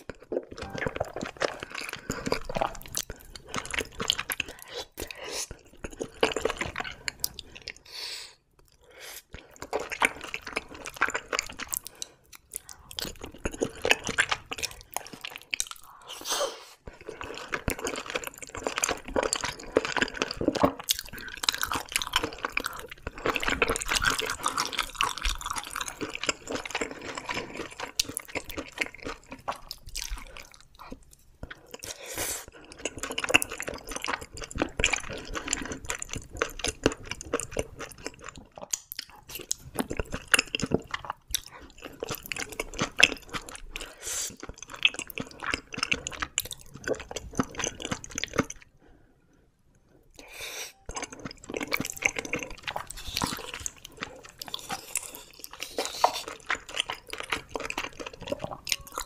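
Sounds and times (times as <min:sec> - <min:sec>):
wet chewing and slurping noodles: 0:00.0 - 0:59.0
sticky mouth clicks and smacks: 0:38.6 - 0:39.3.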